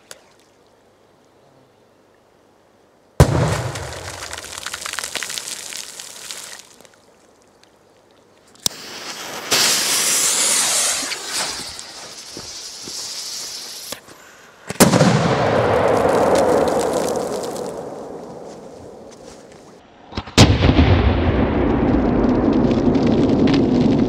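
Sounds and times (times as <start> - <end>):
firecracker bang: 3.2 - 4.7, 8.7 - 13.0, 14.7 - 19.1, 20.2 - 24.0
water and mud falling: 3.2 - 13.0, 15.1 - 19.2
firecracker fuse hissing: 3.5 - 6.8, 8.6 - 14.5, 15.8 - 18.3.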